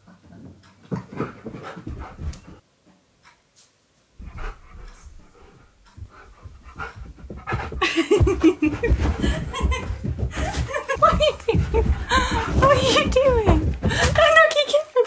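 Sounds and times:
dog panting: 0.8 - 2.6, 4.2 - 14.4
woman laughing: 7.7 - 14.5.

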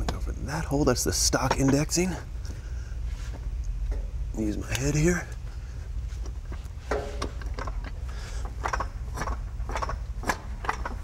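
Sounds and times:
low steady hum: 0.0 - 11.0
metallic clicks and clunks: 6.2 - 11.0.

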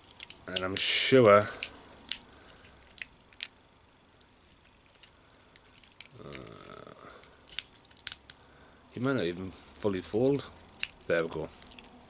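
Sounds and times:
man humming: 6.2 - 7.2.

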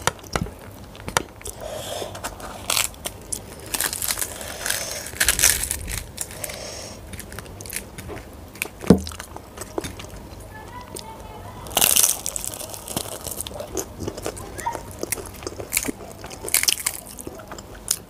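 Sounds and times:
fried bread tearing with crackle: 2.2 - 9.5, 11.7 - 13.7.

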